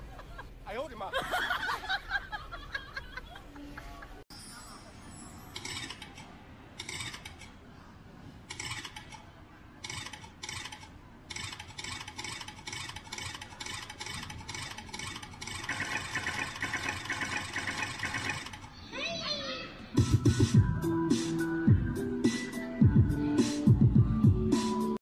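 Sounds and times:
scratchy rattling bursts: 9.8 - 18.7.

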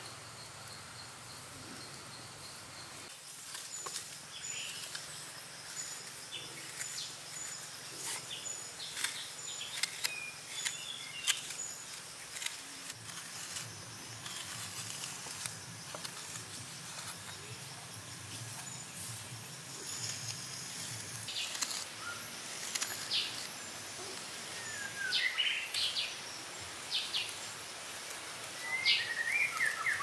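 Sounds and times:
hand tools in wet mud: 3.4 - 17.4, 19.8 - 23.6.

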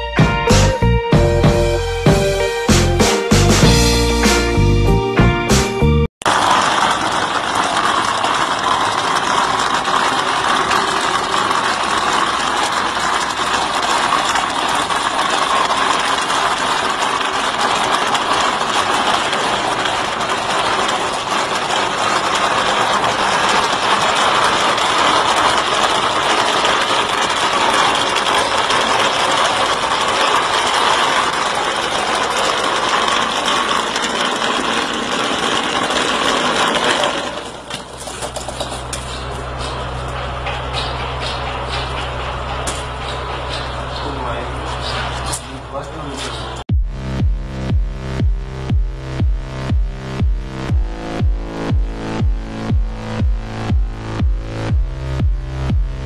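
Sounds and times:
plastering machine running: 6.2 - 56.0
low hum: 37.4 - 56.0.

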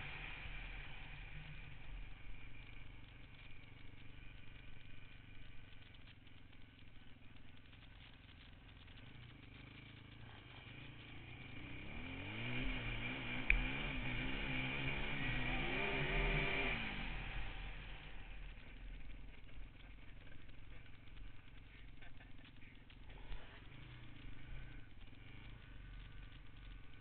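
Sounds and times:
rattle: 0.0 - 27.0
quad engine revving: 7.6 - 27.0.

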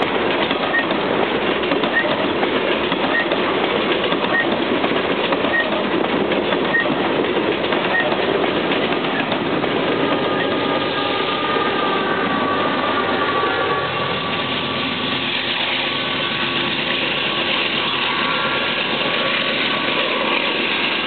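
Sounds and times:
diesel locomotive engine: 0.0 - 21.0
high whine: 9.1 - 21.0.

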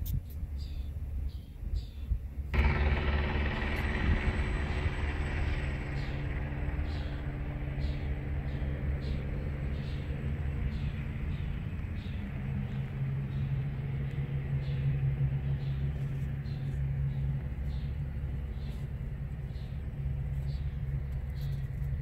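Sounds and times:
low motor hum: 0.6 - 22.0.

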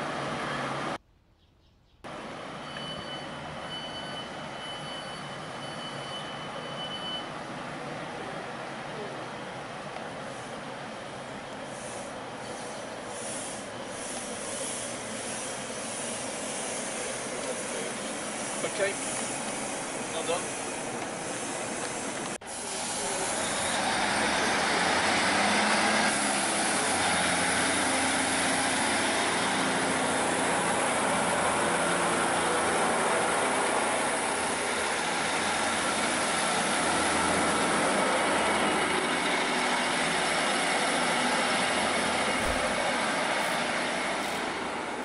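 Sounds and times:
diesel train engines running: 0.0 - 1.0, 2.1 - 45.0
hiss: 11.6 - 44.7.

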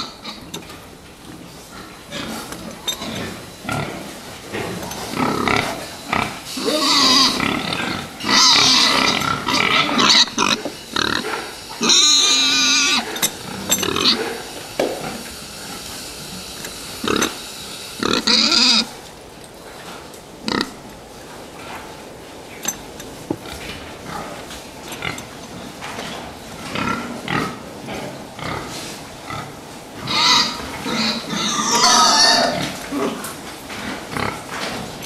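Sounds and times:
pigs squealing: 0.0 - 0.6, 1.7 - 19.0, 28.4 - 34.5
pigs grunting: 0.0 - 19.0, 20.4 - 20.9, 23.4 - 35.0.

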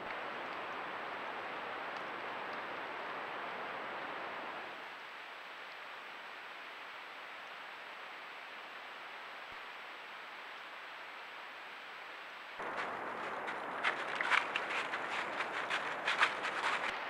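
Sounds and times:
creek flowing: 12.6 - 17.0.

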